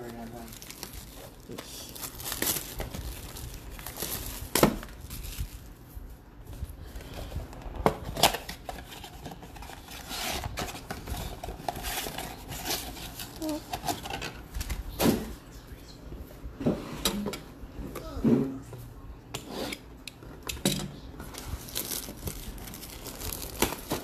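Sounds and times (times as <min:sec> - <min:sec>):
cardboard packaging rustling: 0:00.0 - 0:15.4, 0:21.2 - 0:24.0.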